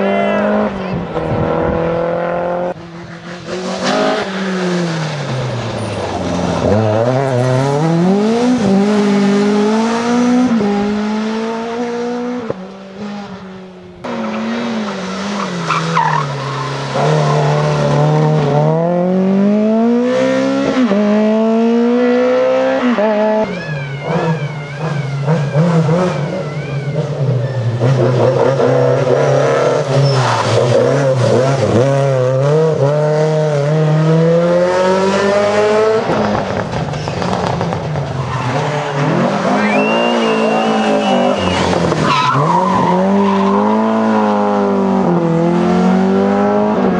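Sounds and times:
rally car engines revving: 0.0s - 46.9s
tyres squealing and skidding: 14.2s - 18.3s, 22.6s - 31.8s, 36.8s - 44.6s.

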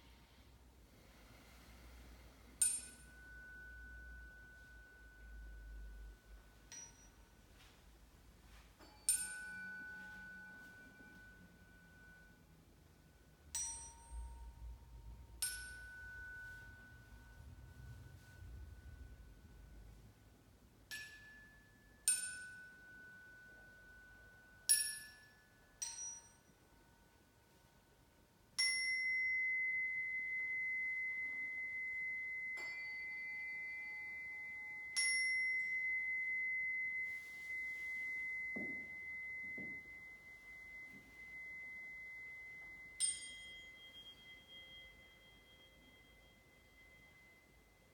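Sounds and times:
metal bowls ringing when struck: 8.8s - 26.7s, 28.6s - 47.9s.

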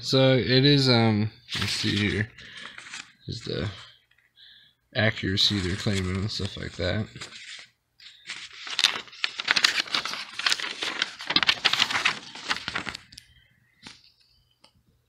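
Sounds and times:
paper rustling and crinkling: 1.5s - 3.8s, 5.4s - 14.1s.

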